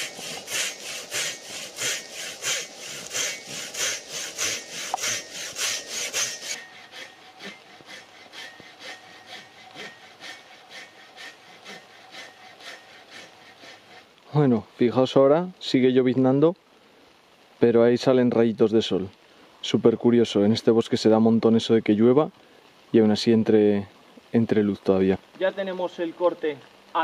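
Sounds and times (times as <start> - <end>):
saw cutting log: 0.0 - 14.1.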